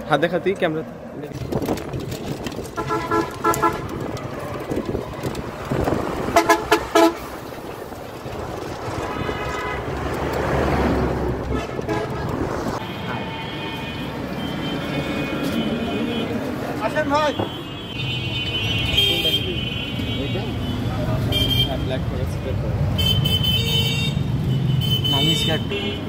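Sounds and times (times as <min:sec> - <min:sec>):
street traffic: 0:00.0 - 0:26.0
vehicle horns honking: 0:02.7 - 0:04.0, 0:06.3 - 0:07.3, 0:09.1 - 0:10.0, 0:11.4 - 0:22.0, 0:22.9 - 0:26.0.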